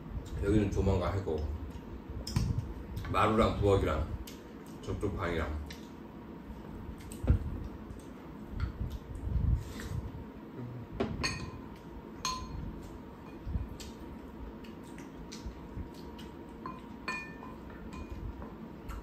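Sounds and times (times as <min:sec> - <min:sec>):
utensils clinking on ceramic bowls: 0:11.2 - 0:11.6, 0:16.6 - 0:18.2.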